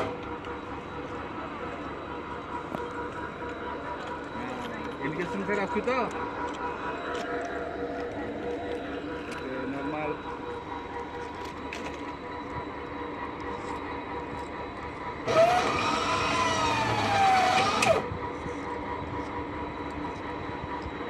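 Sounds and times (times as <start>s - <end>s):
motor whine rising and falling: 15.2s - 18.1s.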